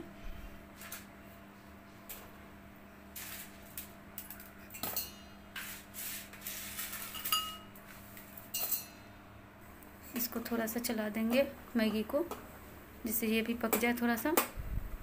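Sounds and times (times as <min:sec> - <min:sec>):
utensils clinking on metal pot: 0:04.2 - 0:05.3, 0:07.0 - 0:07.7, 0:08.5 - 0:09.0.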